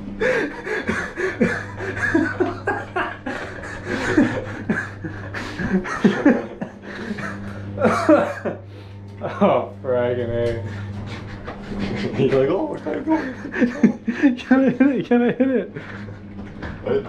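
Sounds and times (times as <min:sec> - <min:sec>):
steady low hum: 0:00.0 - 0:17.0
stifled laughter: 0:00.2 - 0:08.7, 0:10.6 - 0:17.0.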